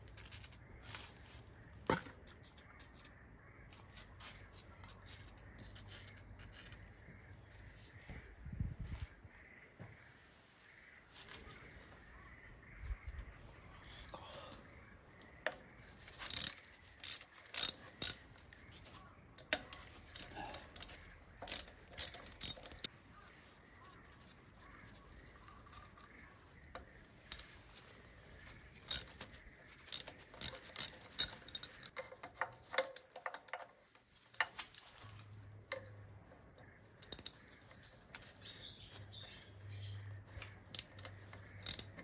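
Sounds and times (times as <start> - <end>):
hand tools clinking on metal: 16.2 - 18.2, 19.4 - 22.9, 28.9 - 29.2, 29.8 - 33.7, 37.0 - 37.4, 40.7 - 42.0.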